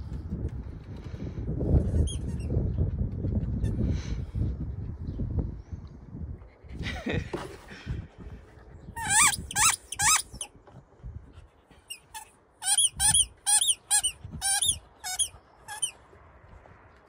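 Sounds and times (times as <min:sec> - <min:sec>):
squeaky toy squeaking: 0:01.9 - 0:02.5, 0:09.0 - 0:10.5, 0:11.8 - 0:16.0.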